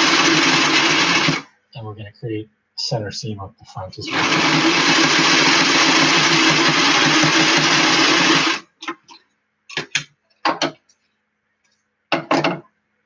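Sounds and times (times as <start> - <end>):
sewing machine stitching: 0.0 - 1.4, 4.1 - 8.6.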